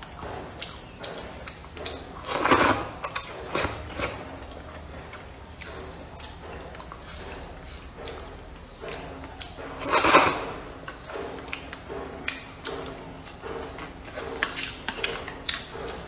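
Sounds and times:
soft chewing: 0.0s - 16.0s
person slurping noodles: 2.2s - 4.2s, 9.8s - 10.6s.

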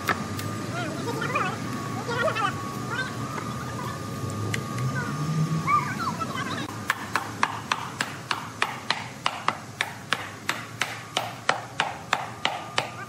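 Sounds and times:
mallet knocking on wood: 6.9s - 13.0s.

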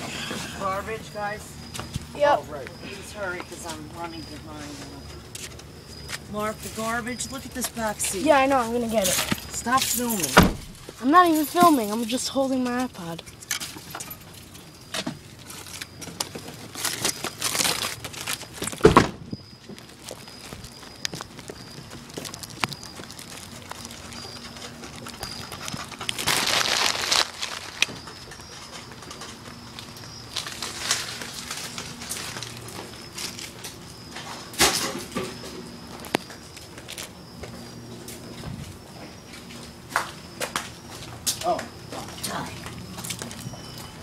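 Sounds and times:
loud thump: 10.4s - 10.8s, 18.8s - 19.3s
food wrappers crinkling: 15.3s - 18.8s, 19.7s - 33.6s
footsteps on pavement: 19.4s - 34.5s, 35.4s - 44.0s.

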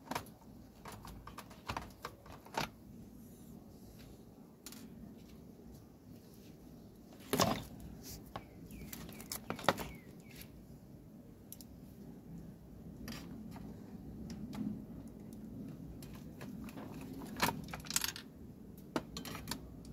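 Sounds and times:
tools and plastic parts clicking: 0.0s - 2.8s, 4.6s - 5.0s, 13.0s - 19.9s.

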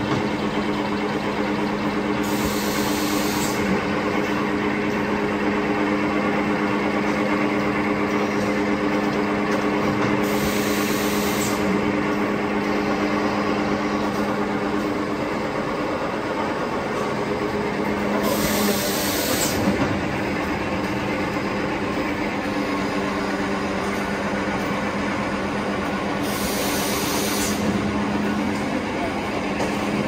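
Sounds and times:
packing machine humming: 0.0s - 30.0s
machine hiss: 2.2s - 3.7s, 10.2s - 11.8s, 18.2s - 19.8s, 26.2s - 27.7s.

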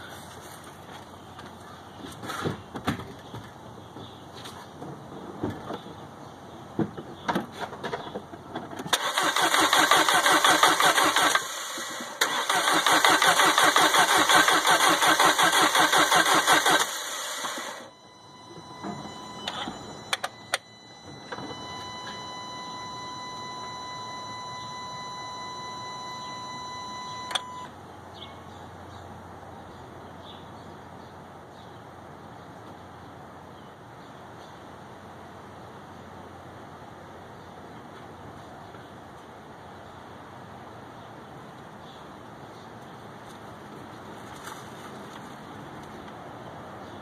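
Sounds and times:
engine cranking on starter: 8.9s - 17.9s
steady electronic beep: 17.8s - 27.7s.

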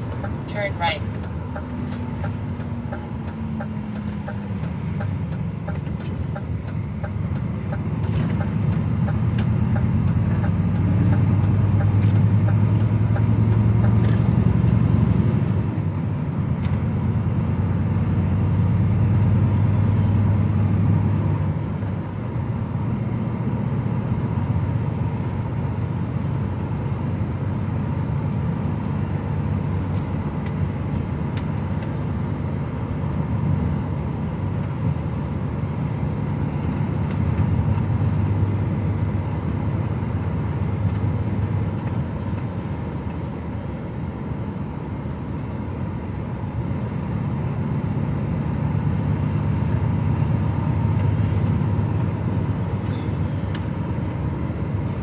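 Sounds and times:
truck diesel engine drone: 0.0s - 55.0s.

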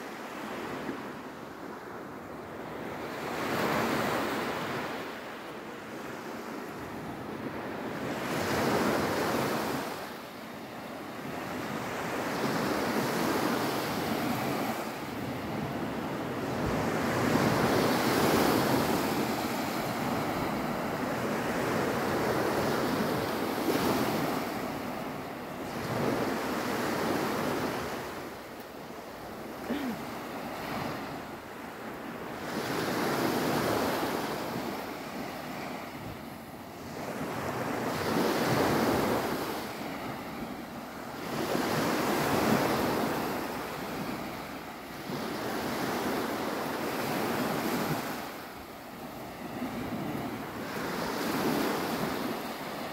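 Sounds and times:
small waves breaking on beach: 0.0s - 52.9s.

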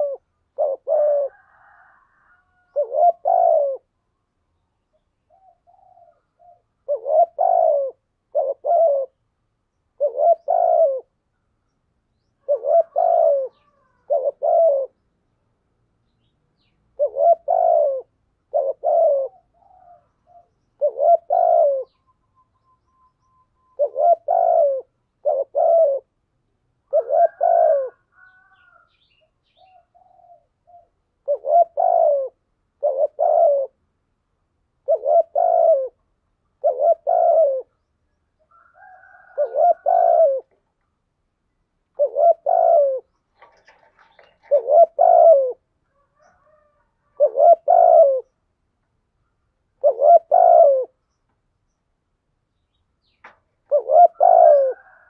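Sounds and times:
dove cooing: 0.0s - 4.0s, 5.3s - 9.3s, 9.9s - 11.2s, 12.2s - 15.0s, 16.6s - 22.2s, 22.9s - 26.2s, 26.8s - 33.8s, 34.8s - 37.9s, 38.5s - 40.6s, 41.9s - 48.4s, 49.8s - 51.0s, 53.6s - 55.0s.

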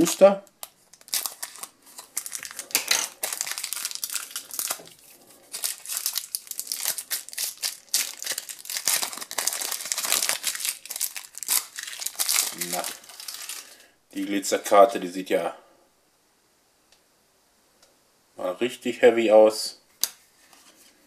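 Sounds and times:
foil wrapper crinkling and tearing: 0.6s - 13.8s.

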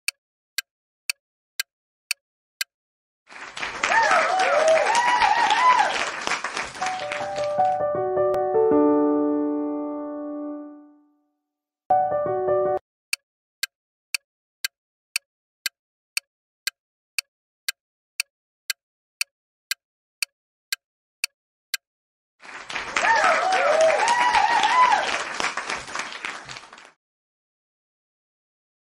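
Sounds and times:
crowd applauding and cheering: 3.3s - 8.2s, 22.4s - 27.0s.

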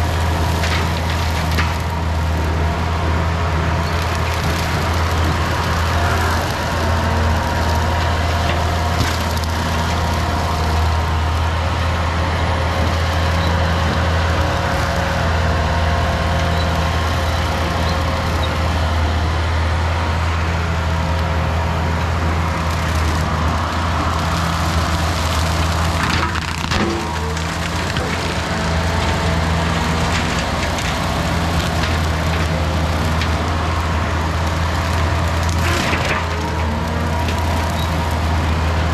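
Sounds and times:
brush cutter whine: 0.0s - 38.9s
diesel engine humming: 0.0s - 38.9s.

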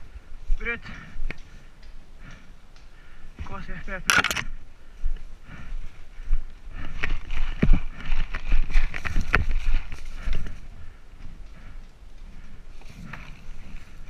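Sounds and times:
running footsteps on forest ground: 0.0s - 14.0s.

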